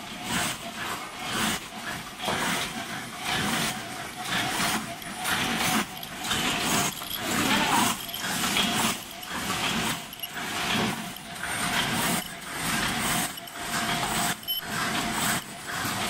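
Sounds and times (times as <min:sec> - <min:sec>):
rhythmic mechanical clatter: 0:00.0 - 0:16.0
steady thin tone: 0:04.0 - 0:15.6.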